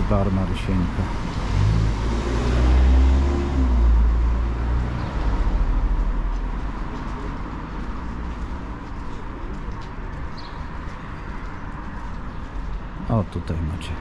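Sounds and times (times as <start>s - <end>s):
background traffic: 0.0s - 14.0s
car driving past: 1.2s - 6.4s.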